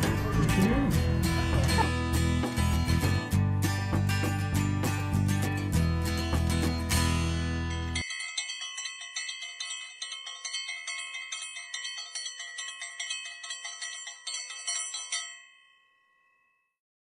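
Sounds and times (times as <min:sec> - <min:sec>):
bright bell chimes: 0:07.7 - 0:16.8.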